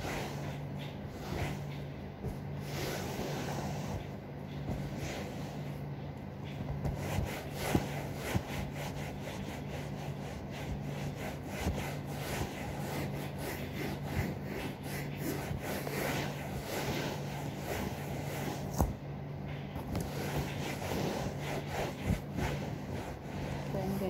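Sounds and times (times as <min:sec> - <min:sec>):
hand scrubbing sofa upholstery: 0:00.0 - 0:19.0, 0:19.8 - 0:24.0.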